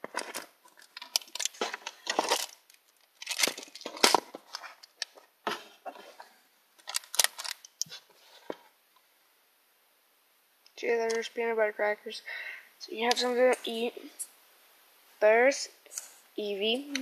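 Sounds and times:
packaging rustling and crinkling: 0.0 - 5.3, 6.8 - 8.6.

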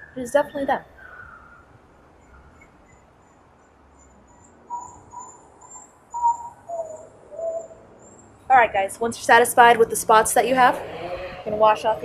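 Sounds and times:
wild dogs squeaking: 4.2 - 8.3.

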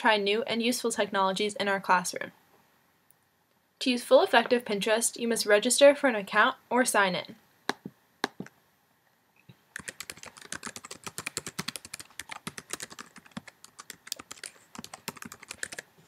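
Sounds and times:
typing on computer keyboard: 9.8 - 15.9.

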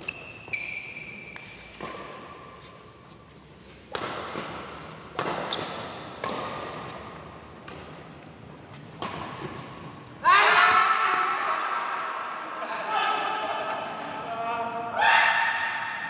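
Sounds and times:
rackets hitting shuttlecock: 0.4 - 2.5, 3.7 - 11.2.

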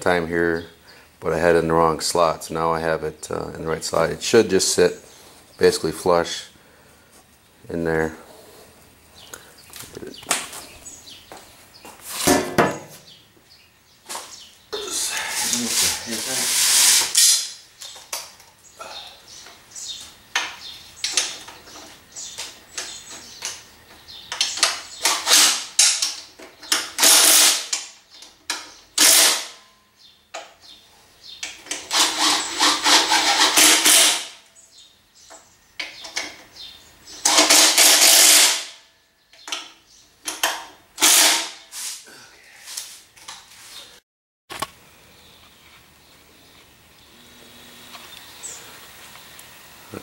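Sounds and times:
electric impact driver bursts: 26.8 - 27.8, 29.0 - 29.6, 31.7 - 34.4, 37.2 - 38.8, 41.0 - 41.6
tools and parts clicking: 37.2 - 38.7.

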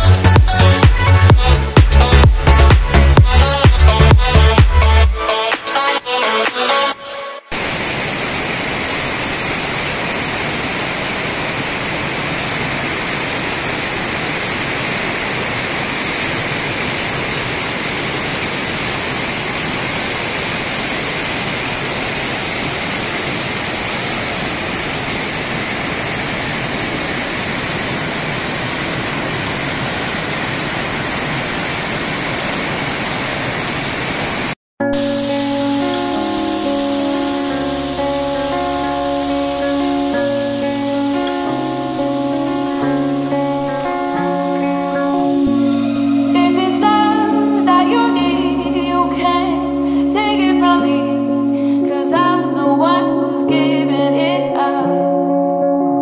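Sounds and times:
waterfall rushing over rocks: 7.5 - 50.3.

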